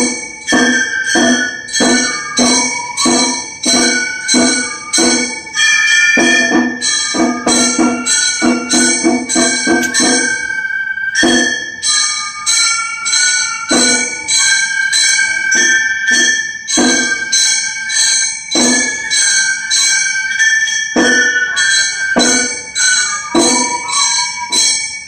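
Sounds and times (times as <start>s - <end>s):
bamboo flute melody: 0.0s - 18.0s, 18.6s - 25.0s
hand gongs clanging: 0.0s - 25.0s
taiko drum beats: 0.0s - 25.0s.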